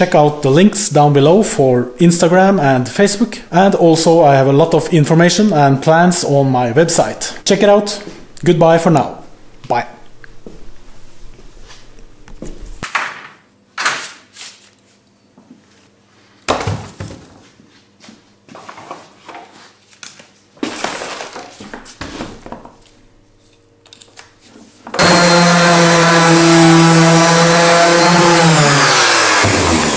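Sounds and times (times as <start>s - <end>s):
sander motor running: 24.9s - 29.9s.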